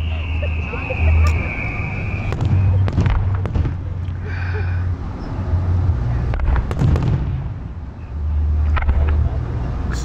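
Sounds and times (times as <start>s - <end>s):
firework booms: 2.2s - 3.9s, 6.3s - 7.6s
sharp firework cracks: 2.3s - 3.8s.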